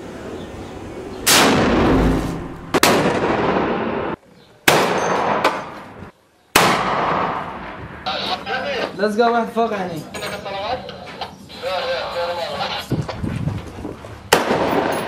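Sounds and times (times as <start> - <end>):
rifle shots echoing indoors: 2.7 - 5.7, 14.3 - 15.0.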